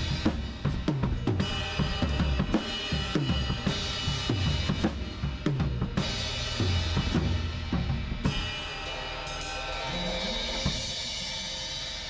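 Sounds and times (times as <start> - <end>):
cymbal crash ringing: 8.0 - 12.0.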